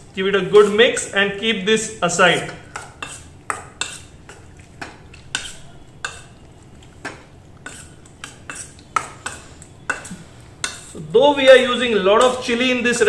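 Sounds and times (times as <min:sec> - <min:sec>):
spoon clinking against steel bowl: 0:05.1 - 0:06.4, 0:07.6 - 0:11.0.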